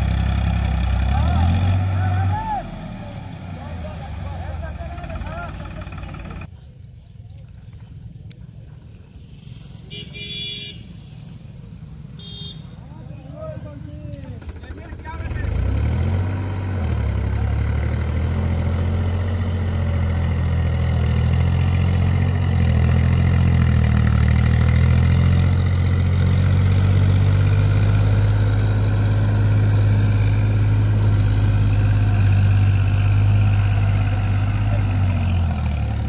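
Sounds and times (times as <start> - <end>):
tractor diesel engine running: 0.0 - 6.5, 13.4 - 36.0
wheels churning through mud: 0.0 - 6.5, 14.3 - 36.0.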